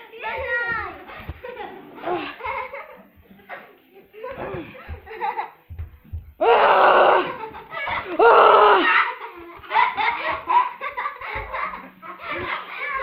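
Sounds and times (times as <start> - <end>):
children giggling: 1.0 - 5.7, 6.8 - 13.0
children squealing: 8.2 - 9.2.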